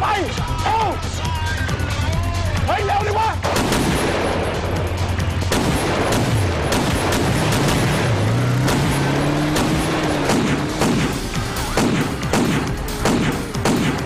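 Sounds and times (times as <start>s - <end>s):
rapid gunfire: 3.4s - 14.0s
motorcycle engine revving: 6.3s - 13.6s.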